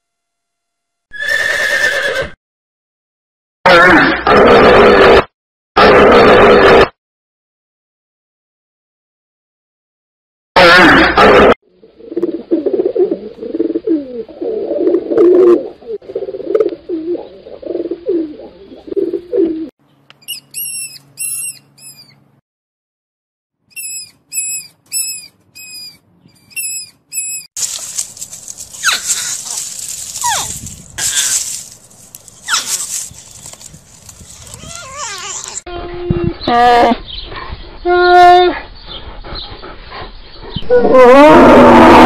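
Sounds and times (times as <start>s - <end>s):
short high chirps: 20.2s - 22.2s, 23.7s - 27.5s
low wavering animal calls: 32.4s - 37.1s.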